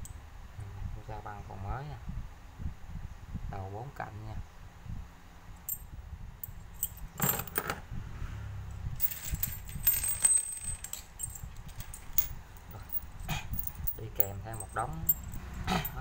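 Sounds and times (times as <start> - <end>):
screwdriver bits clinking: 9.0 - 16.0.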